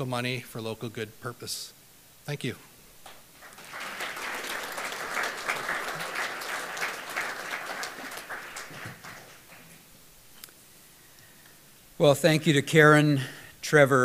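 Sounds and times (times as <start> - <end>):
audience applauding: 3.4 - 9.8.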